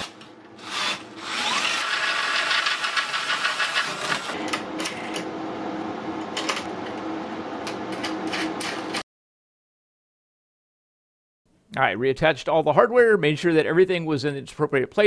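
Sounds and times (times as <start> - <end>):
cordless drill boring through steel: 0.0 - 4.4.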